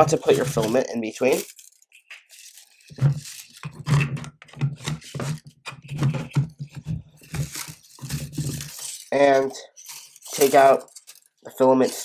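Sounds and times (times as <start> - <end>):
plastic spool clicking and scraping: 0.0 - 9.2.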